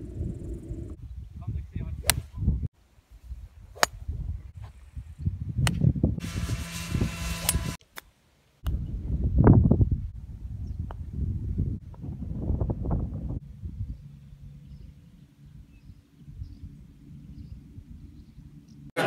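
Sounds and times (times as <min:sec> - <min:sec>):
wind buffeting microphone: 0:00.0 - 0:07.8, 0:08.6 - 0:18.6
golf club striking ball: 0:03.8 - 0:04.0.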